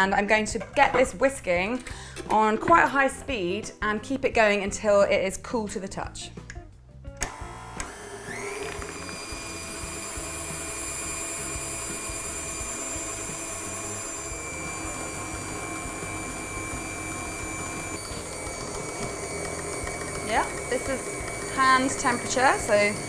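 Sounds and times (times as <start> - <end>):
stand mixer motor whining: 7.2 - 23.0.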